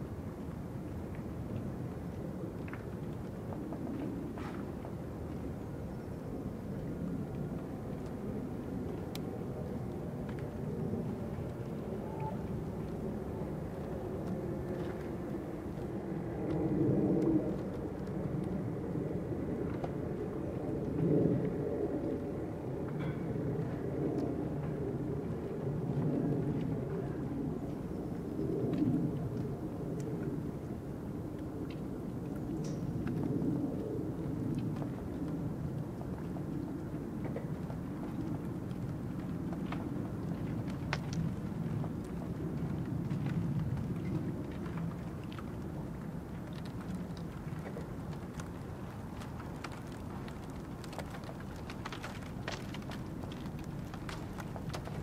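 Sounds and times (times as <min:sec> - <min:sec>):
faint clicks and ticks: 0:06.7 - 0:22.2, 0:31.3 - 0:55.0.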